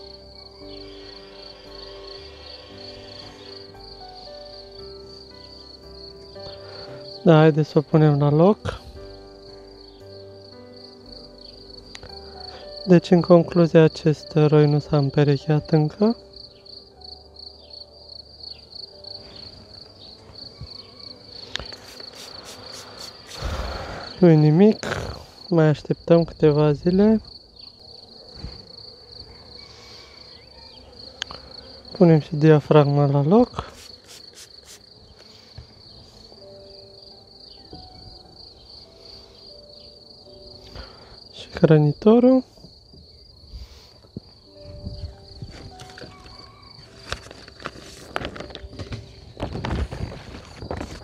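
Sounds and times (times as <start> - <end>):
honeybees buzzing: 0.0 - 14.8, 15.4 - 51.0
bees humming: 0.0 - 47.6
cricket chirping: 0.0 - 51.0
wooden knocks of hive frames: 48.1 - 51.0.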